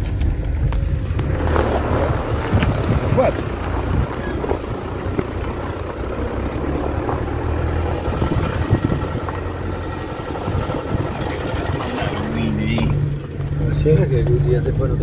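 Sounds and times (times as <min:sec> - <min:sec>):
car engine hum: 0:00.0 - 0:15.0
road noise: 0:00.0 - 0:15.0.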